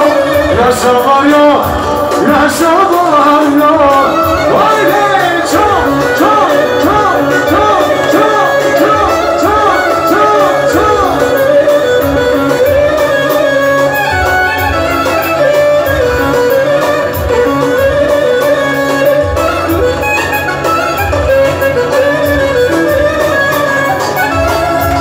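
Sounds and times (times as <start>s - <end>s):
folk dance music on keyboard: 0.0s - 25.0s.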